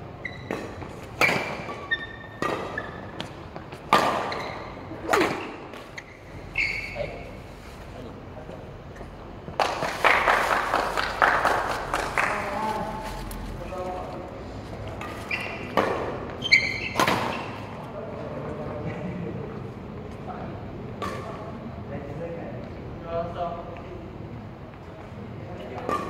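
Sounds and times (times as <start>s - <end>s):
shoes squeaking on court floor: 0.2s - 8.0s, 14.8s - 17.8s
rackets hitting shuttlecock: 0.4s - 5.9s, 15.0s - 17.5s, 25.7s - 26.0s.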